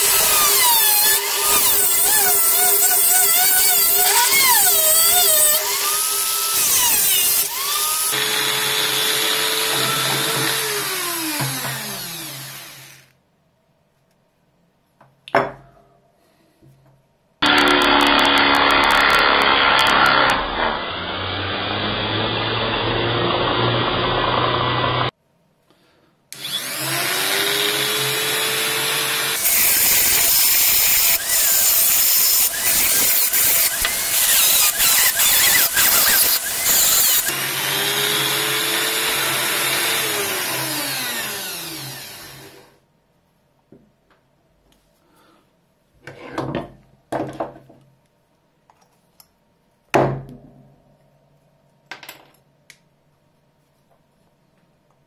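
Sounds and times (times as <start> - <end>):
rotary tool grinding metal: 0.0 - 11.0, 28.7 - 37.4.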